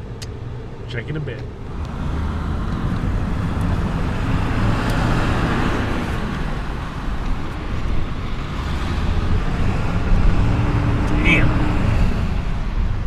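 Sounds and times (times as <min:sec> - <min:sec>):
engine rumble: 0:00.0 - 0:13.0.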